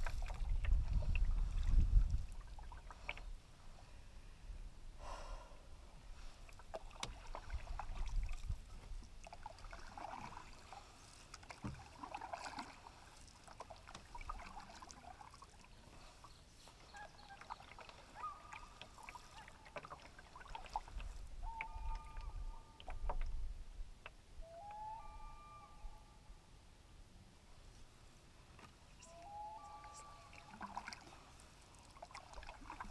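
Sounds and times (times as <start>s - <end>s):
canoe paddle strokes: 0.0s - 3.8s, 6.0s - 24.2s, 27.8s - 32.9s
water splashing and dripping: 6.4s - 15.8s, 16.9s - 23.3s, 29.0s - 32.9s
distant loons calling: 16.8s - 20.0s, 21.4s - 23.2s, 24.4s - 26.3s, 29.0s - 31.0s.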